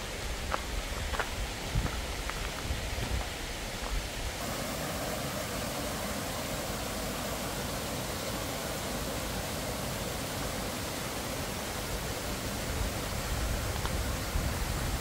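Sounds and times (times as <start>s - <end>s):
stream running over rocks: 0.0s - 15.0s
footsteps on gravel: 0.4s - 4.0s.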